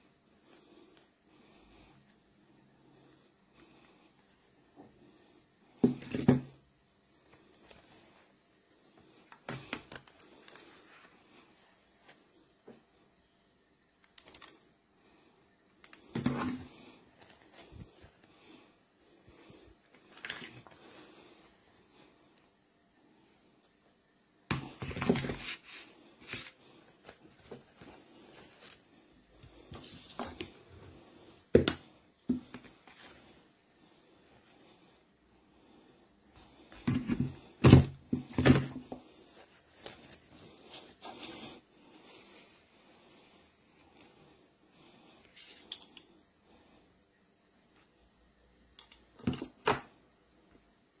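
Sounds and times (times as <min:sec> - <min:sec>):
objects handled by hand: 0:03.6 - 0:13.0, 0:15.7 - 0:22.5, 0:24.5 - 0:33.6, 0:36.3 - 0:42.6
knocking and rustling objects: 0:05.8 - 0:06.6, 0:31.5 - 0:33.2, 0:36.7 - 0:39.2.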